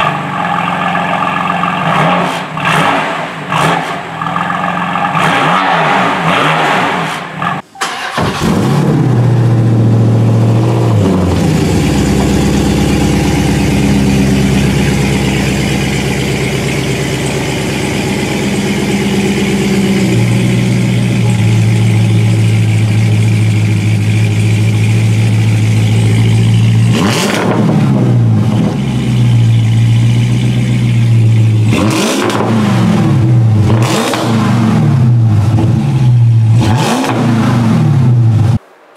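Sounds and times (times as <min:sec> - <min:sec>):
car engine revving: 0:00.0 - 0:38.6
deep engine idling: 0:08.7 - 0:36.6.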